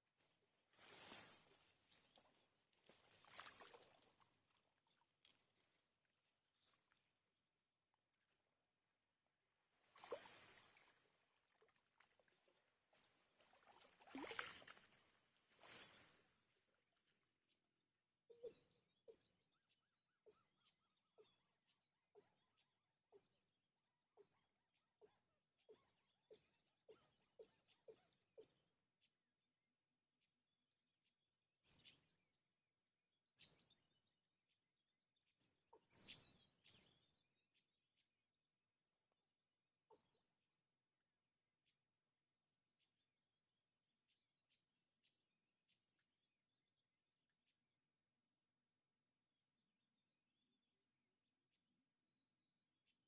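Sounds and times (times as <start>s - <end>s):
reeds and dry grass rustling: 0.2s - 4.3s, 12.9s - 16.3s
faint bird chirps: 9.7s - 29.2s, 31.6s - 38.2s, 39.8s - 40.6s.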